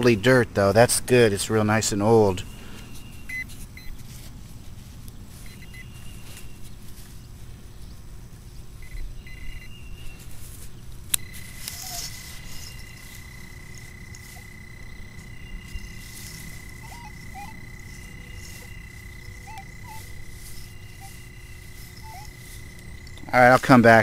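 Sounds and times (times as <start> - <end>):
metal detector high tone: 5.4 - 6.2, 8.8 - 10.0, 11.1 - 24.0.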